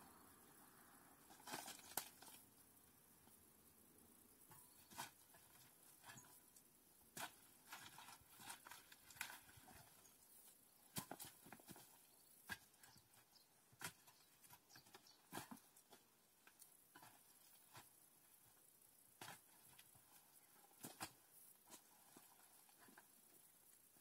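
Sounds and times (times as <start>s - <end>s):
snapping and rustling brush: 1.3s - 2.4s.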